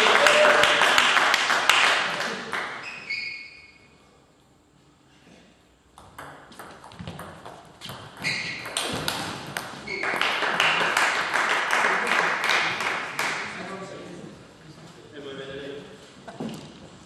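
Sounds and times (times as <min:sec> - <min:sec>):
shoes squeaking on floor: 0:02.8 - 0:03.9, 0:07.8 - 0:09.0, 0:09.8 - 0:10.2.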